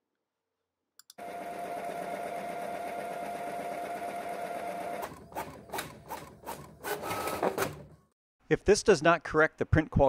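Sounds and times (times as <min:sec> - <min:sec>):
printer motor drone: 0:01.2 - 0:05.2.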